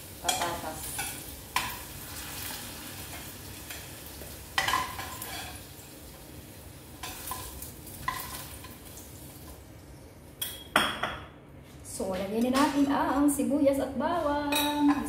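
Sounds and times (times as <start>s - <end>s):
potatoes sizzling in hot oil: 0.0s - 9.7s.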